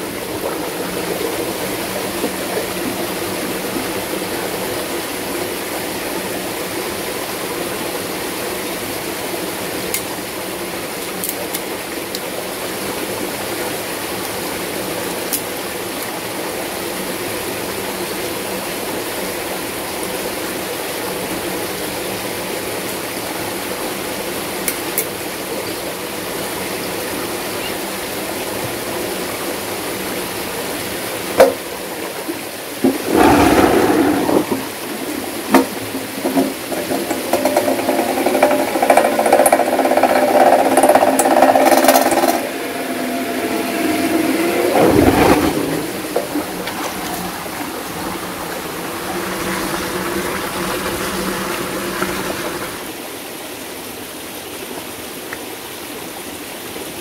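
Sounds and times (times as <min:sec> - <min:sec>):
stream water pouring into trough: 0:32.5 - 0:53.1.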